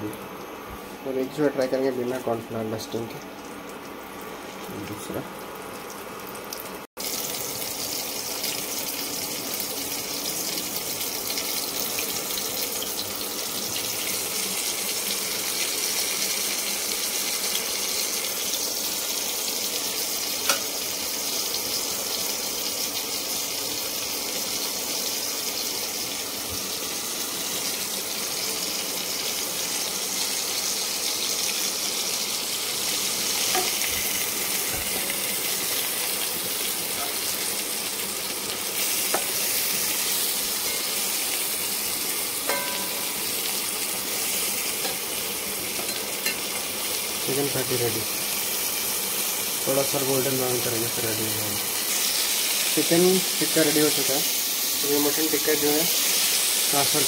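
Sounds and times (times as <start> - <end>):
patties sizzling in oil: 0.0 - 57.0.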